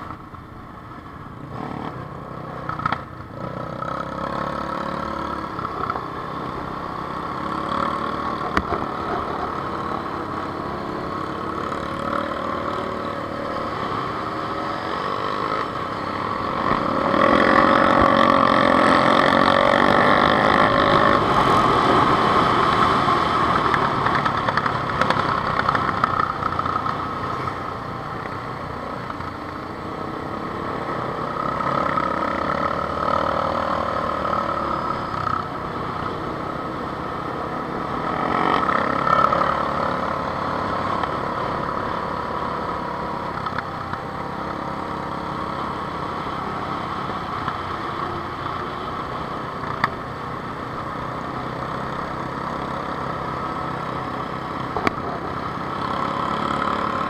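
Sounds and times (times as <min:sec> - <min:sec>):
quad bike and motorcycle engines: 0:00.0 - 0:57.0
motorcycle engine revving: 0:01.2 - 0:57.0.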